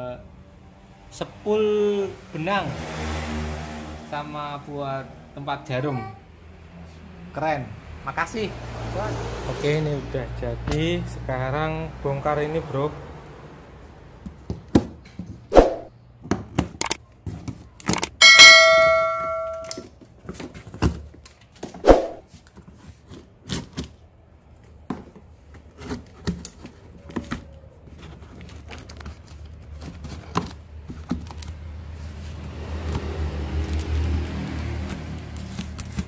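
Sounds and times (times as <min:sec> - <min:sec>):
bell-like ding: 0:18.2 - 0:19.8
handling knocks and snaps: 0:22.4 - 0:31.6, 0:32.8 - 0:36.0
scissors cutting plastic straps: 0:32.9 - 0:36.0.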